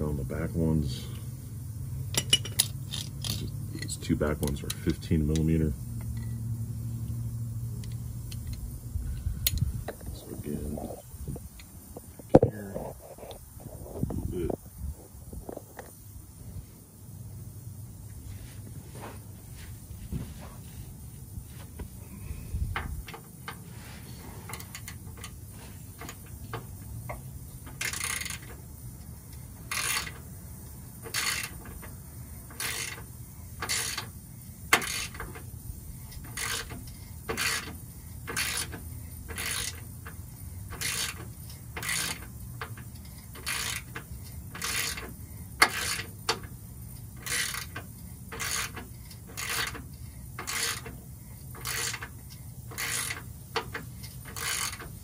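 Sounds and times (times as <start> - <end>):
socket ratchet clicking: 26.0 - 28.6, 29.3 - 30.3, 31.0 - 34.1, 34.7 - 35.5, 36.1 - 55.0.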